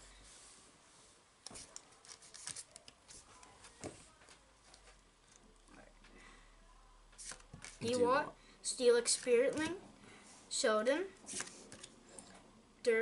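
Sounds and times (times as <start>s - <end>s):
cards rustling: 1.4s - 4.9s, 7.2s - 8.1s, 11.2s - 12.0s.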